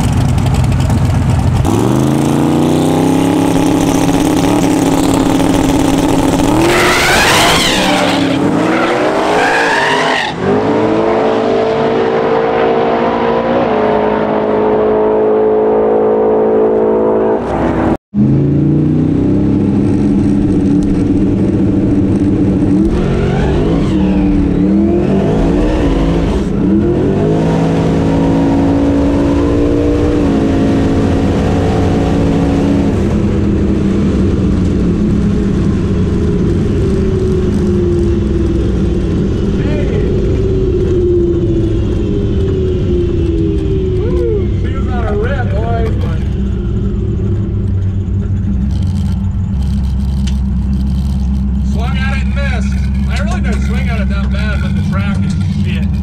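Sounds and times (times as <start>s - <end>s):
race car engine at full throttle: 0.0s - 56.0s.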